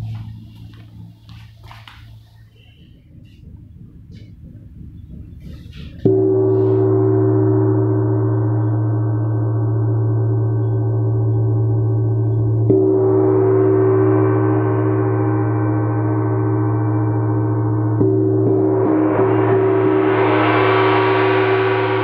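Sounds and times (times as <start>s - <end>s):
wind gong struck with mallet: 6.0s - 22.0s.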